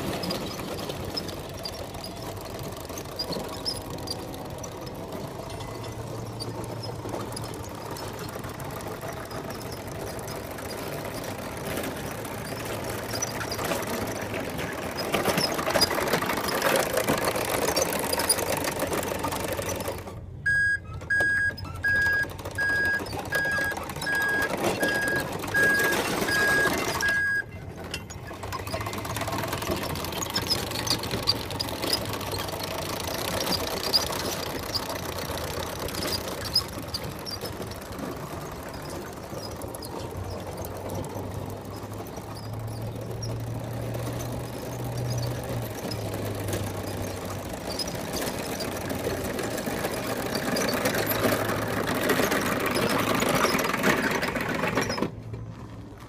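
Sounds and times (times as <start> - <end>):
steel tracks clattering on gravel: 0.0 - 20.1, 22.3 - 56.0
motors whirring: 0.0 - 55.2
pulsing beep: 20.5 - 27.6.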